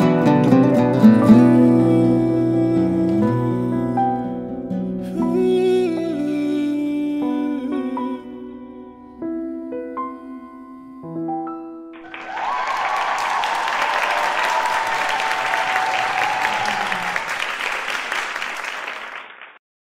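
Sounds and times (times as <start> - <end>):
slow piano ballad: 0.0 - 12.8
audience applause: 12.0 - 19.6.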